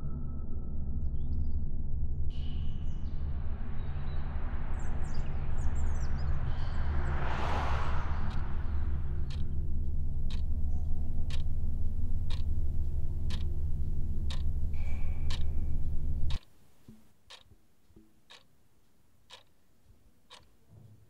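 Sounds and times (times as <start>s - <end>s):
low steady rumble: 0.6s - 16.4s
wall clock ticking: 9.2s - 20.7s.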